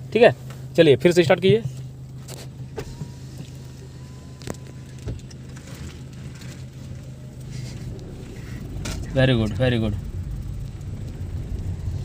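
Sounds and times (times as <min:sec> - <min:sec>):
car engine and road hum: 0:00.0 - 0:12.0.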